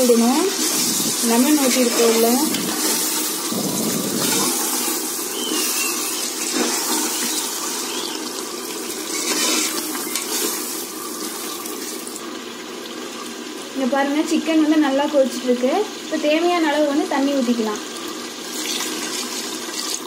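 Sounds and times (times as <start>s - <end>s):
food sizzling in oil: 0.0s - 20.0s
ladle stirring: 0.5s - 12.0s.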